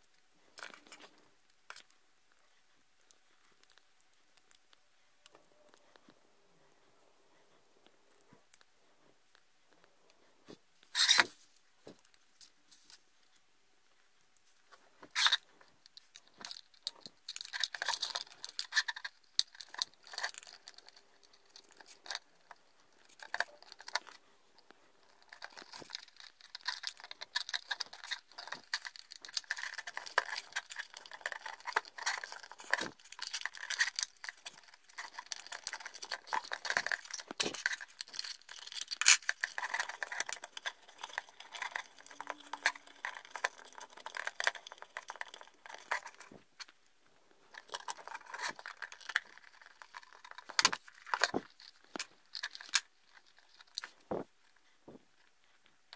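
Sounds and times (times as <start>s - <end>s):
clicks and rustles of cables: 0.0s - 2.0s, 14.2s - 55.9s.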